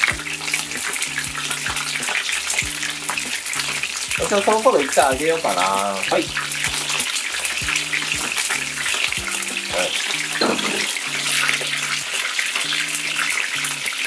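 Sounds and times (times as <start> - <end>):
chicken frying in oil: 0.0 - 14.0.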